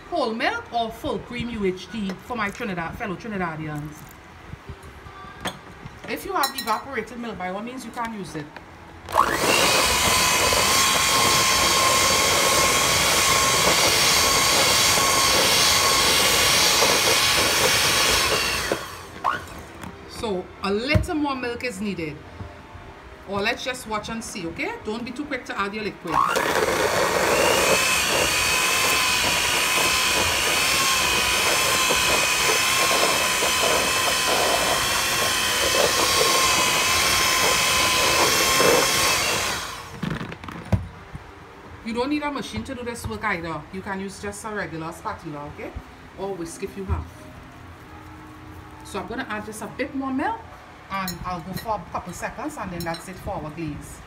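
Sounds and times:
beater whirring: 0:09.1 - 0:19.6, 0:26.0 - 0:40.2
electric mixer whining: 0:09.1 - 0:19.7, 0:26.0 - 0:40.3.

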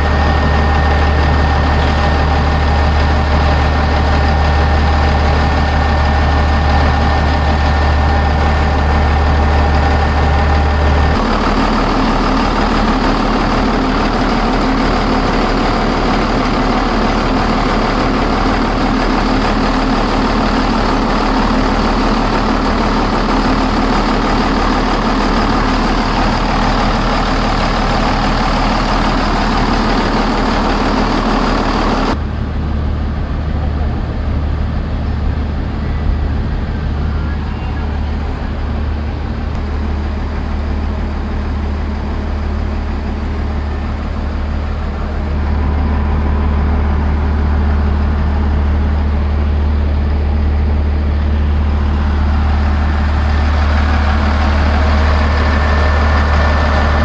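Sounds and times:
diesel engine idling: 0:00.0 - 0:57.0
high whine: 0:00.0 - 0:57.0.

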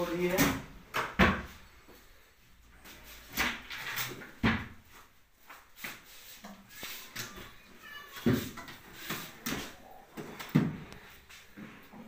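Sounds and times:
drawers opening and shutting: 0:02.9 - 0:04.8.

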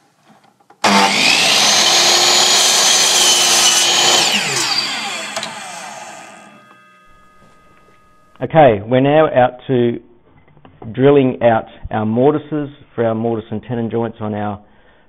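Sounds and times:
electric power tool motor whining: 0:00.8 - 0:08.4.

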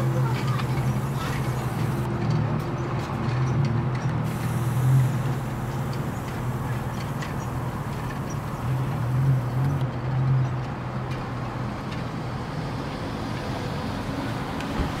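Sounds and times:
low engine drone: 0:00.0 - 0:02.2
traffic-like rush: 0:00.0 - 0:15.0.

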